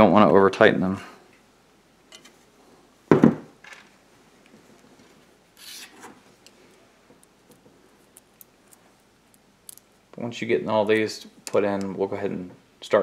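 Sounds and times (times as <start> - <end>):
screwdriver rubbing and clicks: 5.6 - 6.1
rasping scrape: 5.6 - 6.2.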